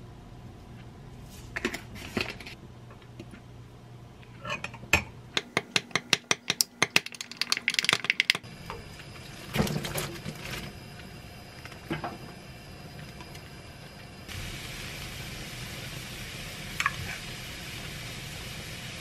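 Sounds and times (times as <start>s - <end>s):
boiling water hissing: 8.4s - 19.0s.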